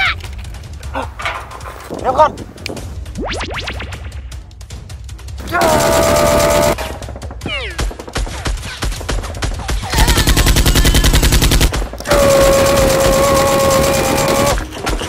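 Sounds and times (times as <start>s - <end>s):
machine gun sound effect: 5.6s - 6.8s, 9.9s - 14.6s.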